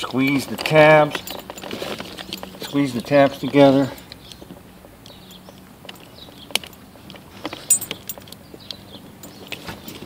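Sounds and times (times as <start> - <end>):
wires rattling: 0.0 - 10.0.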